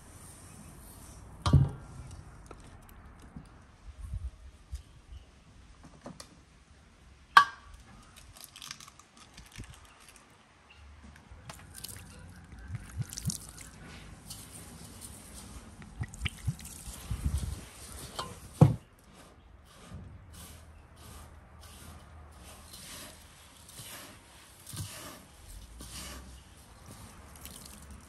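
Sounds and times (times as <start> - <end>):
egg cracking on basin rim: 8.2 - 10.2
hand kneading wet salt: 11.5 - 28.0.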